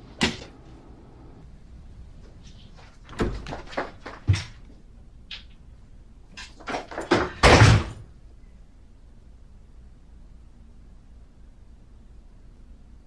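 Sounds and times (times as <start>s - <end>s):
door shutting with heavy thud: 6.9s - 8.0s.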